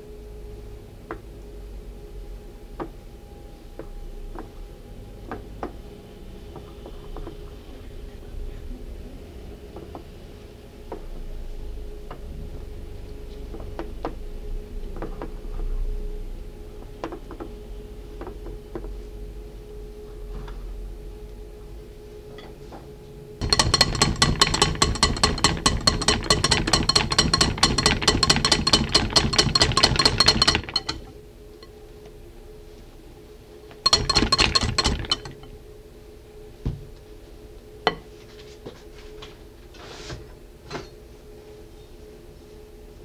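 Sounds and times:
whisk clinking against glass bowl: 23.4s - 31.7s, 33.8s - 35.5s.

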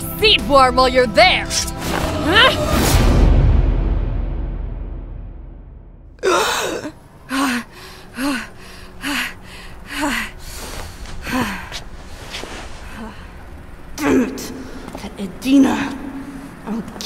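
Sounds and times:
low rumble: 1.9s - 6.2s
woman panting heavily: 6.2s - 13.5s.

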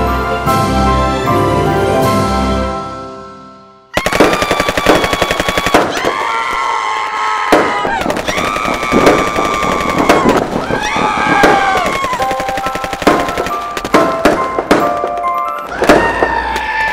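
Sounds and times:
music: 0.0s - 3.9s, 12.0s - 16.5s
man and woman screaming: 4.0s - 12.4s, 15.7s - 16.9s
fireworks crackling bangs: 4.0s - 16.9s.

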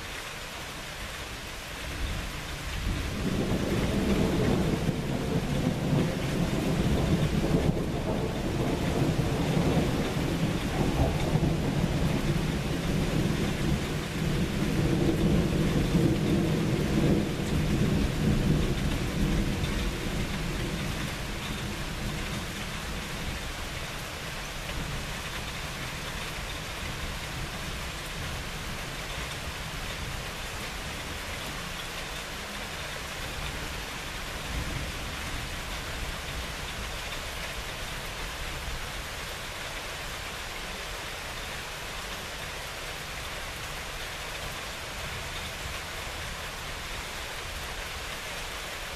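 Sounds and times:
steady rain: 0.0s - 48.9s
rolling thunder: 3.0s - 23.2s.

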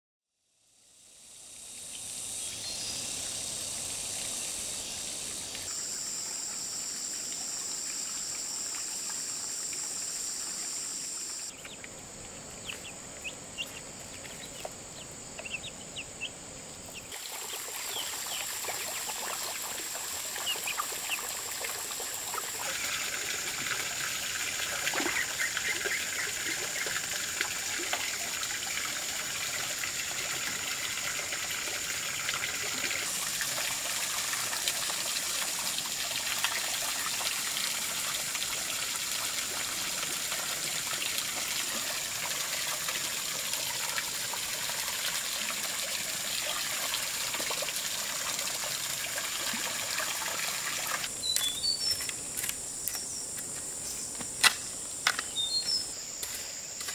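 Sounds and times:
water trickling and splashing: 1.7s - 52.5s
ducklings and chicks peeping: 11.5s - 11.9s, 12.6s - 17.1s, 20.4s - 21.2s.

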